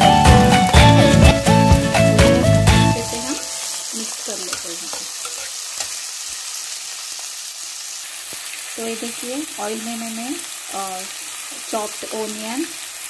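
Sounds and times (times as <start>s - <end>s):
background music: 0.0s - 4.0s
onion sizzling in hot oil: 2.7s - 13.0s
metal spatula scraping pan: 4.4s - 6.0s.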